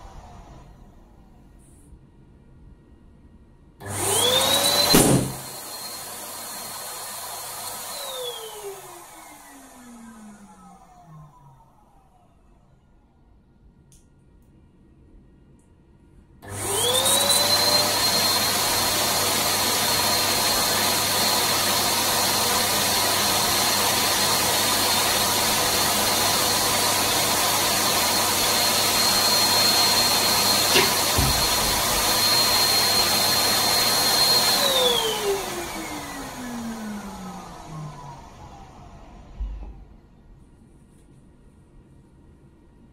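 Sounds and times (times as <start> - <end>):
electric balloon pump whining: 3.8 - 11.5, 16.4 - 39.9
balloon bursting: 4.9 - 5.4.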